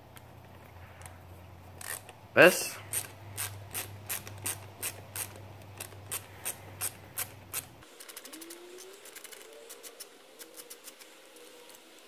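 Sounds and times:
ratcheting screwdriver clicking: 2.9s - 8.4s.

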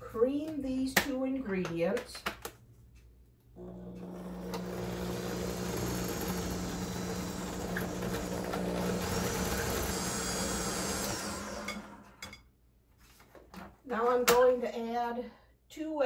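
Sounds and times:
electric stand mixer running: 3.6s - 12.2s.

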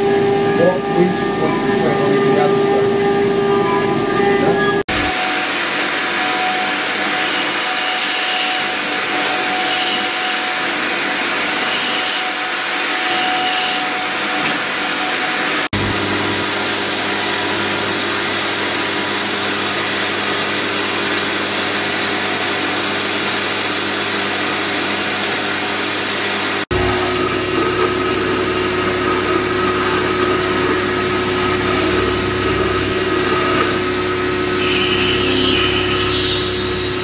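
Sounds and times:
low motor hum: 0.0s - 5.2s, 26.7s - 37.0s
rotary carving tools grinding stone: 7.1s - 14.6s.

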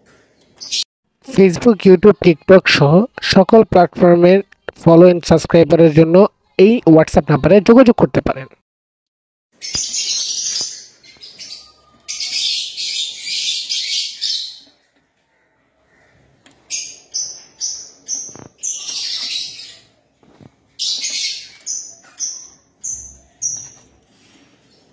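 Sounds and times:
lovebird chattering chirps: 16.7s - 19.9s, 20.8s - 24.0s.

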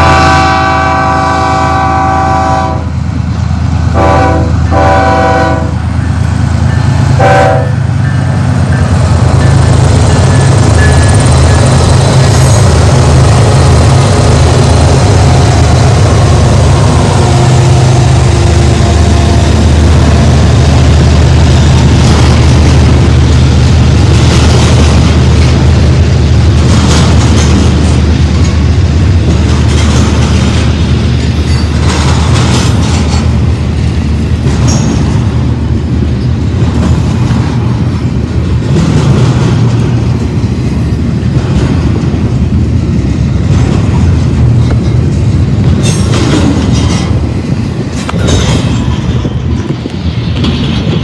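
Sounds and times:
diesel locomotive engine drone: 0.0s - 51.0s
train cars clattering: 0.0s - 51.0s
wheel and rail noise: 2.4s - 51.0s.

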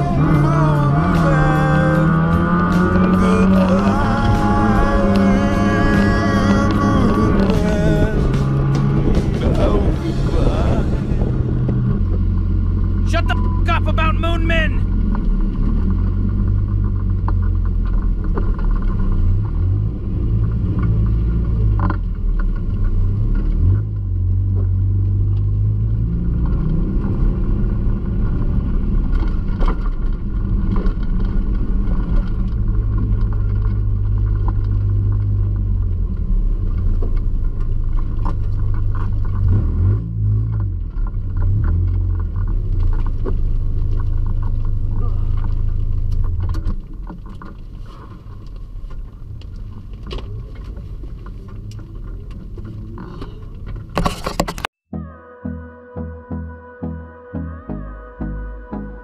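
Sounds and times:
car engine revving: 0.0s - 46.8s.

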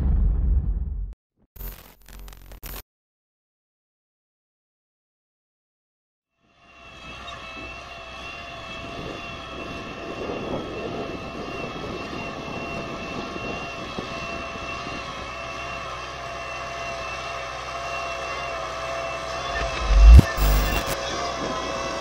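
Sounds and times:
high whine: 19.4s - 21.0s.

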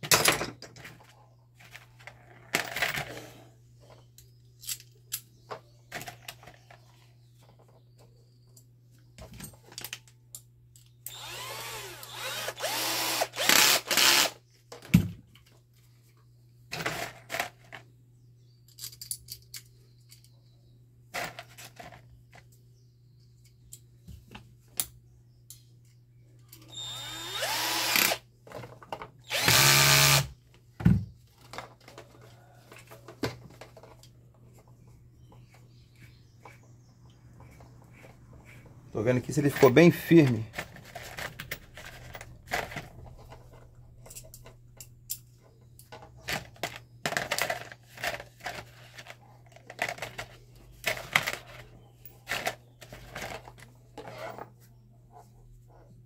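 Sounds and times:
clicks and knocks of parts handled: 3.8s - 11.2s, 18.6s - 20.4s, 39.4s - 54.4s
cordless drill driving screws: 11.1s - 14.4s, 26.7s - 28.2s, 29.2s - 30.3s.

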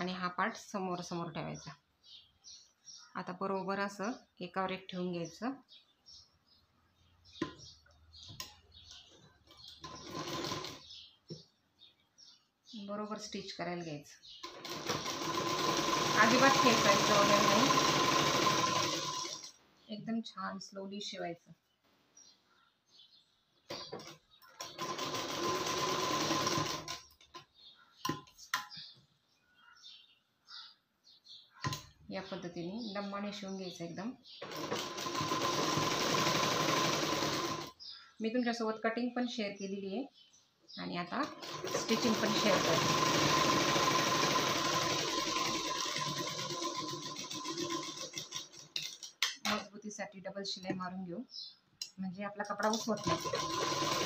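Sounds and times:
sewing machine stitching: 9.6s - 10.8s, 14.4s - 19.6s, 24.0s - 27.0s, 34.4s - 37.7s, 41.2s - 49.1s, 52.6s - 54.0s.

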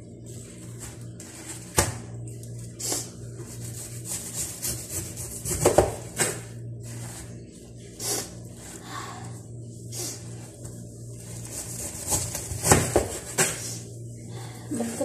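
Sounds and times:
knife sawing through cabbage: 3.5s - 5.7s.

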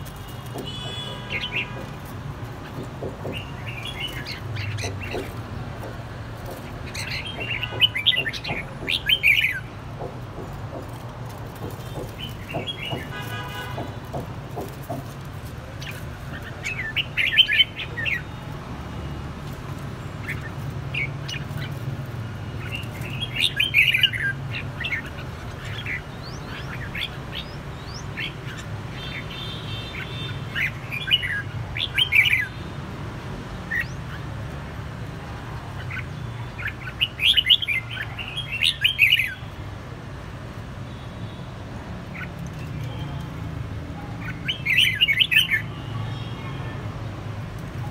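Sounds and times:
birds singing chirpy song: 0.0s - 39.8s, 40.8s - 47.9s.

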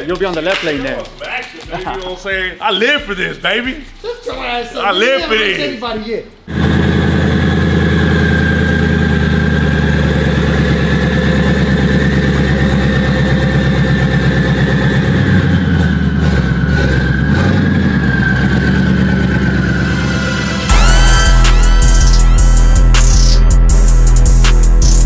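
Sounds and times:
car engine idling: 6.5s - 23.9s
steady high whine: 6.5s - 24.2s.

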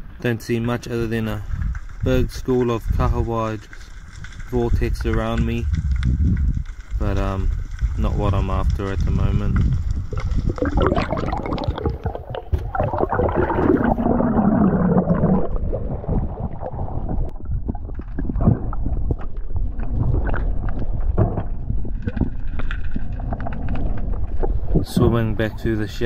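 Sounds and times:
crackling clicks: 0.0s - 15.8s, 16.6s - 26.0s
muffled underwater rumble: 0.0s - 26.0s
underwater bubbling: 5.7s - 26.0s
falling gurgle: 7.9s - 26.0s.

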